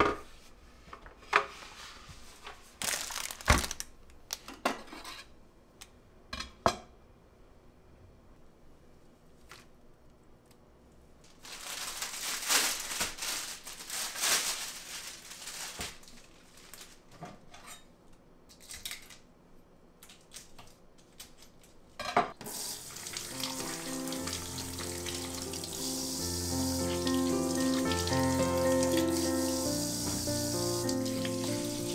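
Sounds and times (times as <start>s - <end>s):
vegetables on cutting board: 0.0s - 5.3s
kitchen tap running: 22.4s - 31.9s
water splashing and dripping: 22.4s - 31.9s.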